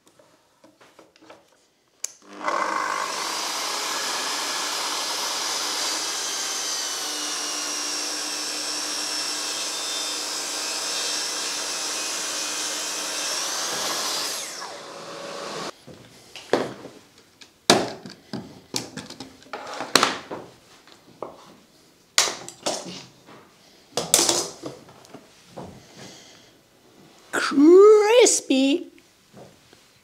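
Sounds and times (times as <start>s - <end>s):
plunge saw cutting board: 2.2s - 15.7s
saw winding down: 2.2s - 15.7s.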